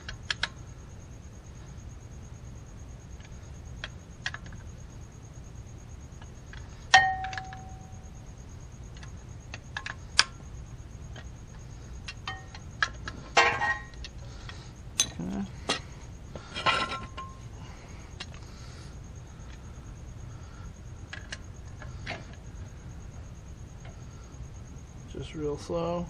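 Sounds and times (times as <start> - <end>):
metal tools clinking: 12.2 - 14.1, 15.0 - 15.9, 16.5 - 17.4.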